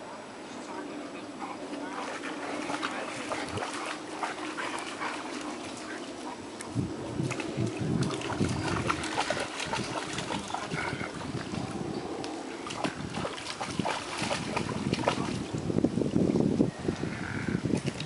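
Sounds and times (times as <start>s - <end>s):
dog splashing in water: 1.9s - 11.7s, 12.6s - 15.5s
wind buffeting microphone: 2.1s - 18.0s.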